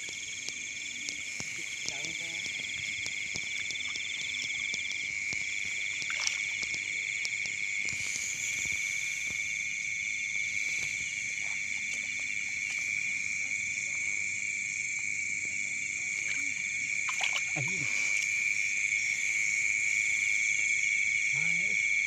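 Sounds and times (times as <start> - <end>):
faint clicks: 0.0 - 9.4.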